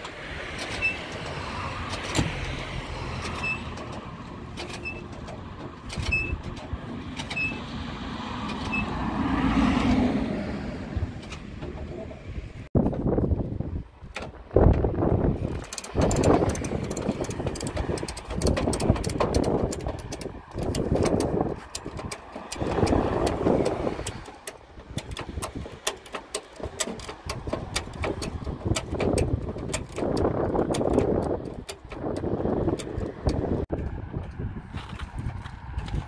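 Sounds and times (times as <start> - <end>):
ratchet strap clicking: 15.4 - 33.6.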